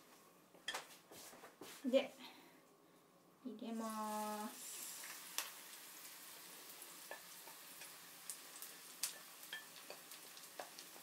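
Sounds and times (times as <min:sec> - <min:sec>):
batter sizzling in hot oil: 0:03.8 - 0:11.0.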